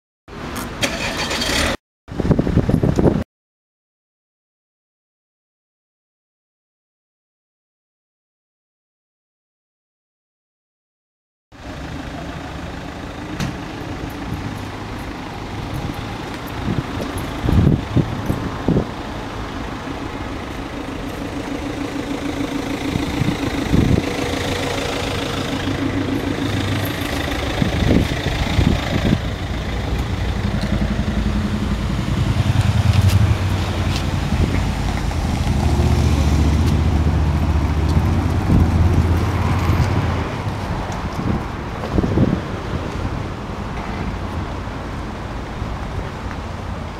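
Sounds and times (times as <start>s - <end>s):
car engine idling: 11.6s - 39.4s.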